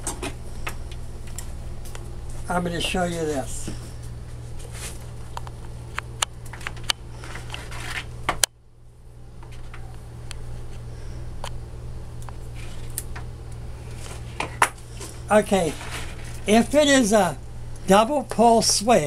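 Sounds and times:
steady low hum: 0:00.0 - 0:19.0
wire and small parts handled: 0:04.5 - 0:08.4, 0:12.2 - 0:16.6.

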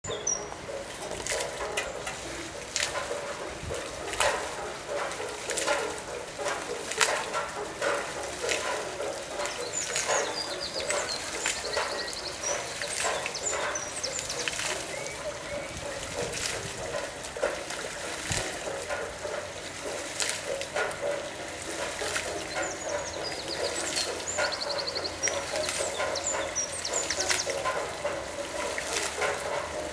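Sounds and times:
small birds chirping: 0:00.0 - 0:00.5, 0:09.5 - 0:16.0, 0:22.4 - 0:27.6
water splashing and trickling: 0:00.0 - 0:29.9.

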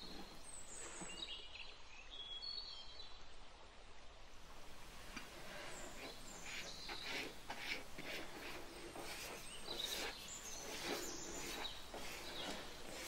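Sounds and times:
pastry brush wet strokes: 0:05.1 - 0:13.0.

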